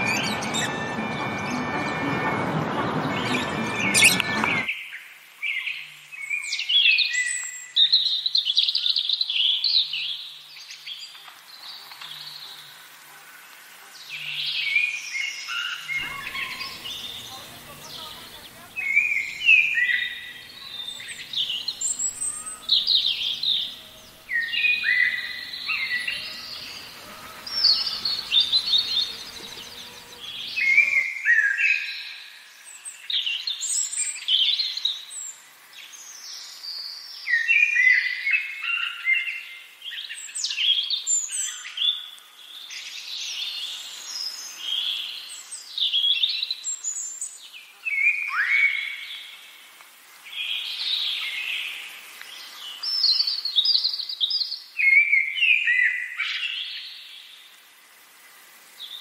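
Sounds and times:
songbirds singing and chirping: 0.0s - 49.4s
low background noise: 15.9s - 31.0s.

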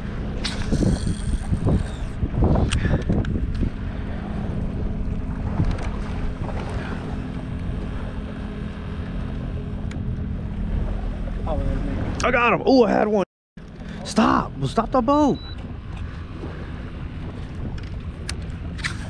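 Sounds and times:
wind buffeting microphone: 0.0s - 12.2s, 15.4s - 19.0s
electric motor humming: 0.5s - 2.3s.

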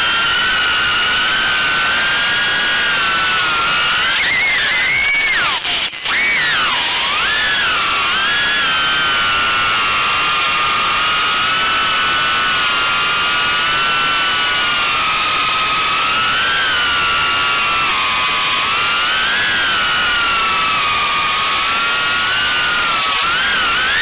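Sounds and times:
quadcopter motors whining: 0.0s - 24.0s.

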